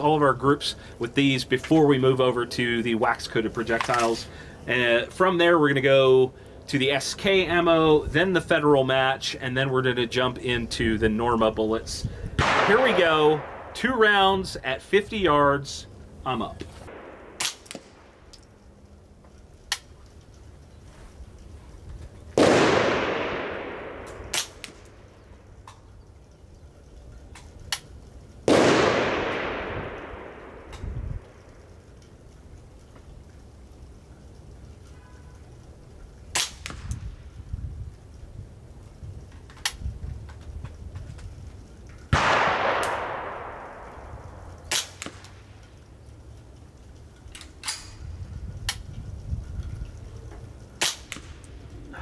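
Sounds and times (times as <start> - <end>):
sharp cracks: 12.3 - 52.0
suppressed rifle shot with echo: 12.4 - 13.7, 22.4 - 24.9, 28.5 - 31.3, 42.1 - 45.3.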